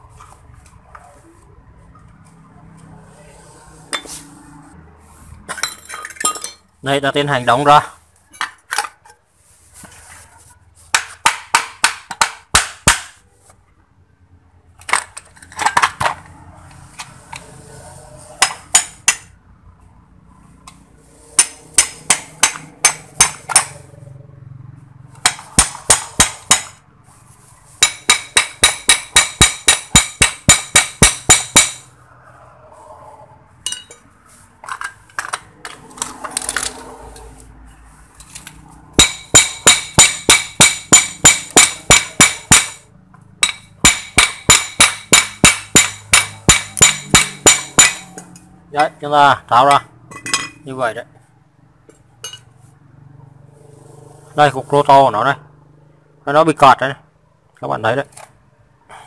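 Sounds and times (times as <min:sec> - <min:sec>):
hammer striking metal: 0:11.0 - 0:13.2, 0:18.4 - 0:19.3, 0:21.4 - 0:23.8, 0:25.2 - 0:26.8, 0:27.8 - 0:31.9, 0:33.7 - 0:34.0, 0:39.0 - 0:42.8, 0:43.4 - 0:48.4.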